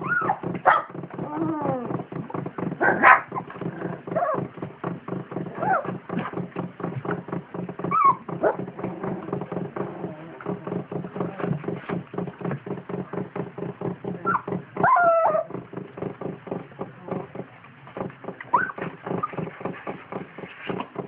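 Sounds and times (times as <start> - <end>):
low hum with fast ticking: 0.0 - 21.0
puppies whimpering: 14.3 - 15.5.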